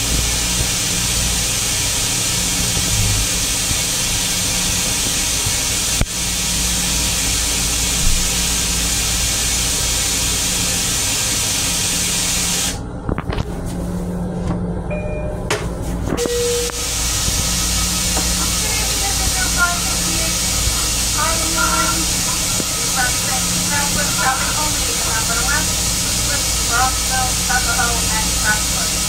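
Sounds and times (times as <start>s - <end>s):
low hum: 0.0s - 5.0s, 12.8s - 28.6s
rushing air hiss: 0.0s - 12.8s, 16.6s - 29.0s
low rumble: 1.2s - 6.4s.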